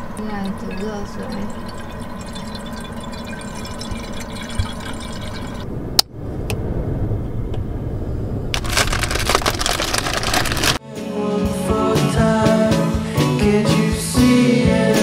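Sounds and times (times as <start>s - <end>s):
water pouring and running: 0.1s - 5.7s.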